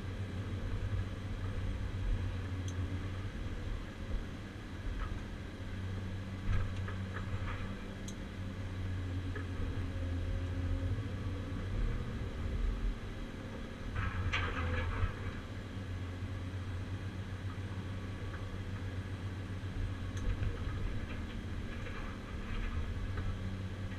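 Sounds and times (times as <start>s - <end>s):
excavator engine and hydraulics: 0.0s - 23.9s
clatter bursts: 14.0s - 15.4s.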